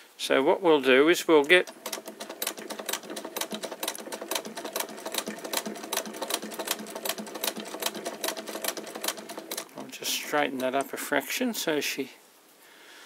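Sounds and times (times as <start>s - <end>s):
hand-cranked sewing machine clatter: 1.4s - 11.1s.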